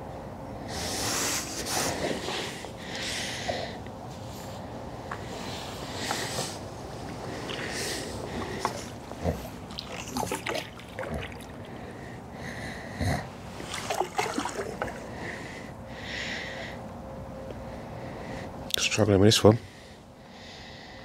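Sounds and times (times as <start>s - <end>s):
water splashing and sloshing: 7.0s - 12.3s, 13.4s - 15.7s.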